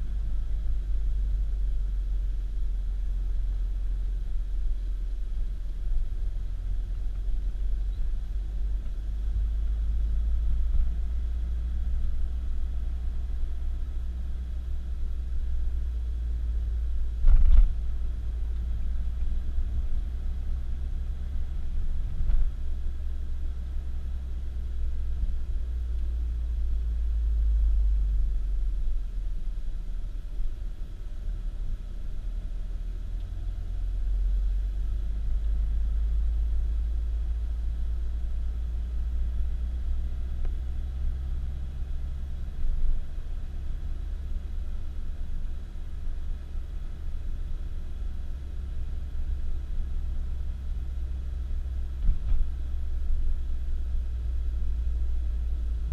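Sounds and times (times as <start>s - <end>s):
car interior road noise: 0.0s - 55.9s.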